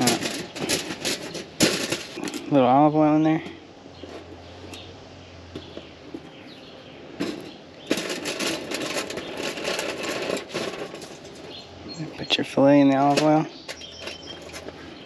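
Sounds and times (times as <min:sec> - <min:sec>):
aluminium foil crinkling: 0:00.0 - 0:02.5, 0:07.8 - 0:11.6.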